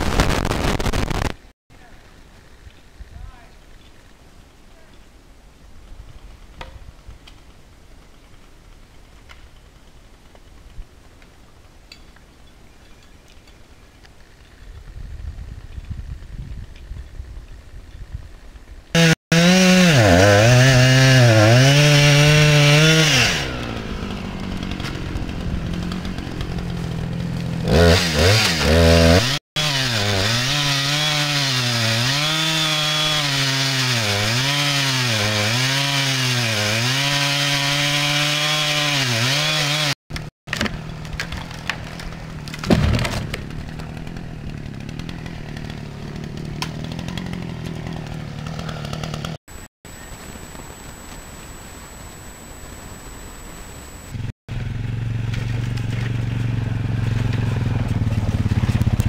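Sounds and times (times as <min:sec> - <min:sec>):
chainsaw cutting wood: 0:19.0 - 0:49.7.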